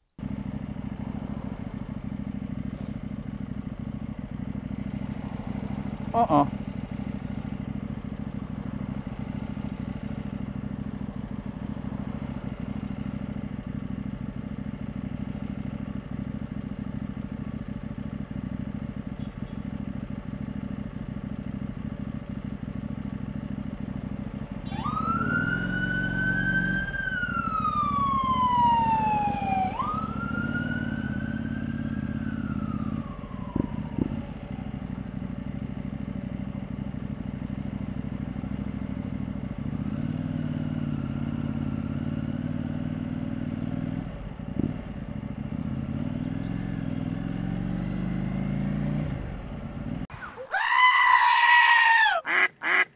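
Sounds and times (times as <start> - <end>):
motorcycle engine running: 0.1 - 50.1, 52.3 - 52.9
emergency vehicle siren wailing: 24.5 - 35.1.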